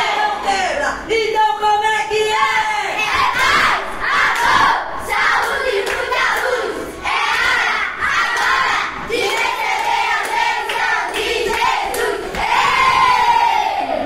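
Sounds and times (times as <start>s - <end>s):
children chanting: 3.0s - 14.0s
children clapping: 4.3s - 4.6s, 5.4s - 6.6s, 8.2s - 12.7s.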